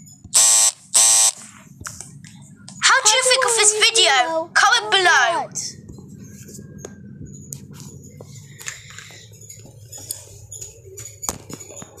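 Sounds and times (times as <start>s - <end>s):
low hum: 0.0s - 11.2s.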